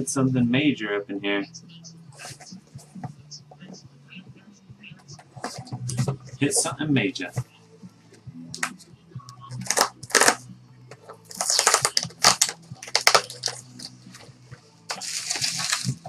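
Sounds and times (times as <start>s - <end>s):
adhesive tape peeling: 9.5s - 10.4s, 11.3s - 14.0s, 14.9s - 16.0s
bubble wrap crinkling: 9.5s - 10.4s, 11.0s - 14.3s, 14.9s - 16.0s
paper and cardboard rustling: 11.0s - 14.3s, 14.9s - 16.0s.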